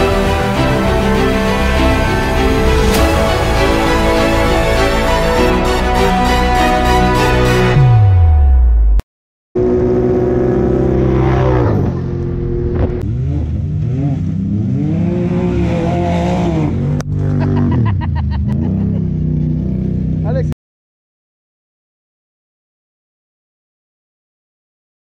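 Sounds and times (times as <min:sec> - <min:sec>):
vehicle engines revving: 0:09.6 - 0:20.5.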